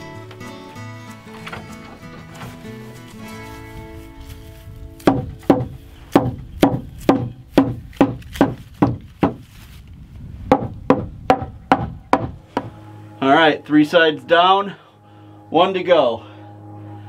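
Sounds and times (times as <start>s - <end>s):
hammer striking wooden board: 5.0s - 9.4s, 10.5s - 12.7s.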